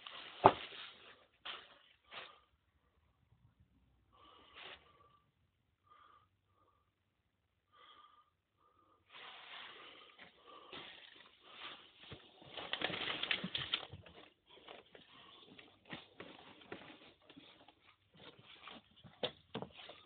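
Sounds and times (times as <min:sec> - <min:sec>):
footsteps on wooden floor: 0:15.8 - 0:20.0.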